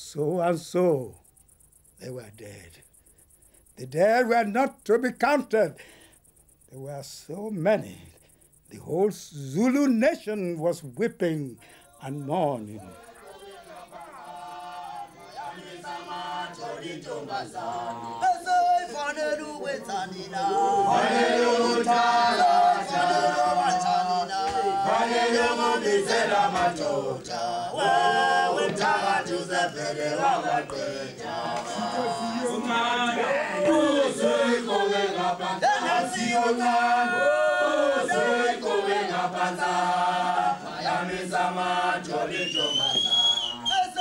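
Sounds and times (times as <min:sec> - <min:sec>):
choir singing a chant: 0:12.0 - 0:44.0.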